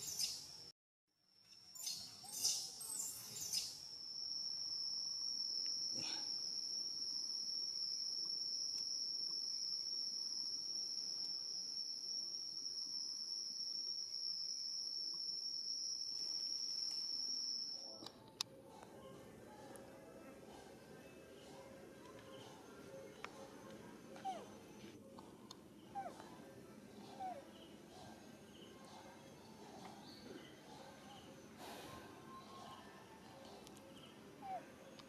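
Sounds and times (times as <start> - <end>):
high-pitched insect drone: 1.8 - 17.9.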